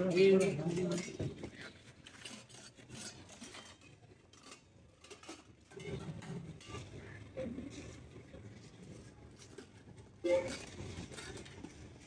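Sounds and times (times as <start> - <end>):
steel dishes clinking and scraping: 0.0 - 8.0.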